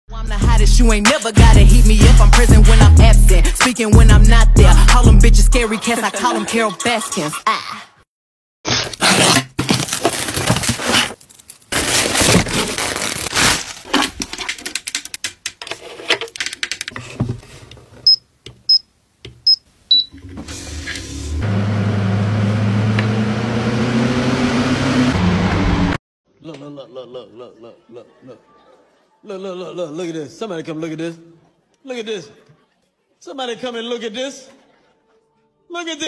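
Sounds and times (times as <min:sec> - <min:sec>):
rustling and clicking from handling: 0:13.8 - 0:18.7.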